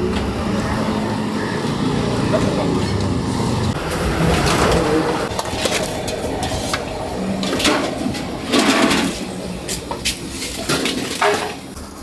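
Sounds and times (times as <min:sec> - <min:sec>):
street noise: 0:00.0 - 0:12.0
rush of noise: 0:00.4 - 0:08.2
metal bowls and utensils clinking: 0:02.2 - 0:11.8.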